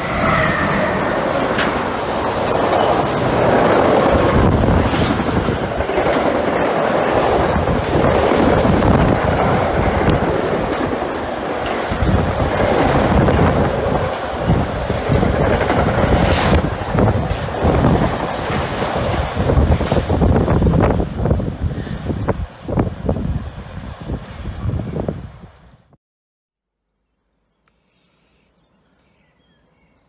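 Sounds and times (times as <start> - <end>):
freight train rumbling past: 0.0 - 26.0.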